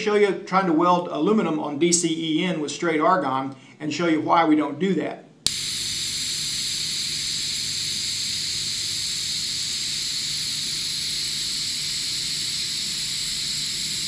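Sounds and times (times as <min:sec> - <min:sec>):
welding arc hissing: 0:05.5 - 0:14.0.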